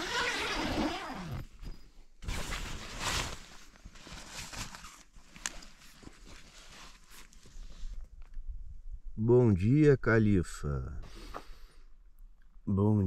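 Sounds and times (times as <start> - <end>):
zipper being pulled open: 0.0 - 3.5
tent fabric crinkling: 0.0 - 8.0.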